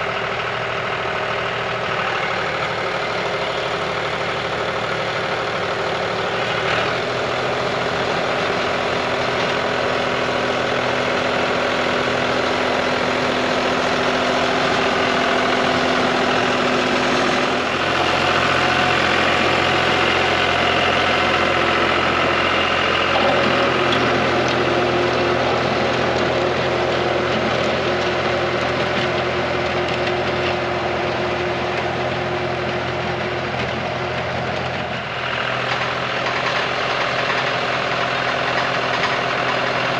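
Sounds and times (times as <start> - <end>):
rotary tiller in soil: 0.0 - 39.9
tractor diesel engine under load: 0.0 - 39.9.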